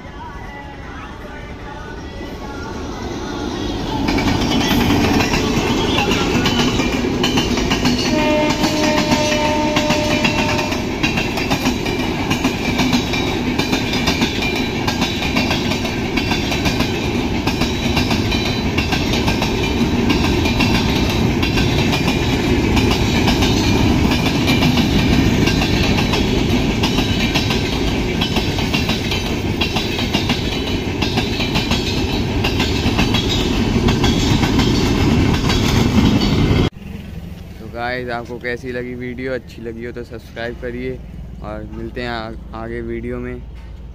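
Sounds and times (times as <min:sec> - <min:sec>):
train coaches rumbling past: 0:00.0 - 0:43.9
wheels clattering over rail joints: 0:04.1 - 0:42.8
train horn blast: 0:08.0 - 0:11.0.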